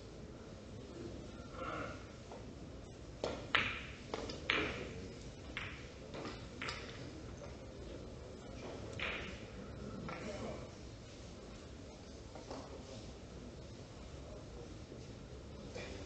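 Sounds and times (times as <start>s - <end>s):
billiard balls clicking: 3.2s - 7.6s, 8.6s - 10.2s.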